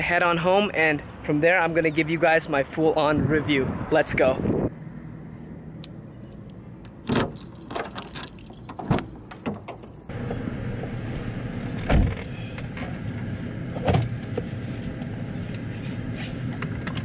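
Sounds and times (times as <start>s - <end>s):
key jangling in car door lock: 7.0s - 10.1s.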